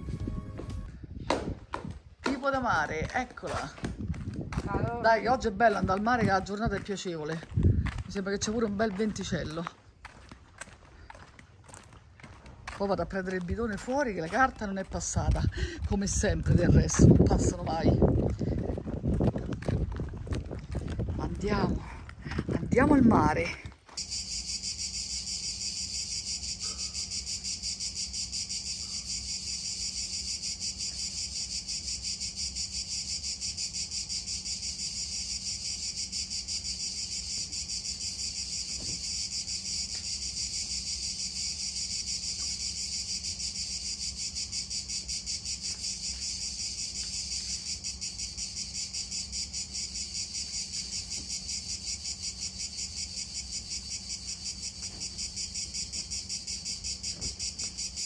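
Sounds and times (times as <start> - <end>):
insects buzzing: 23.9 - 58.0.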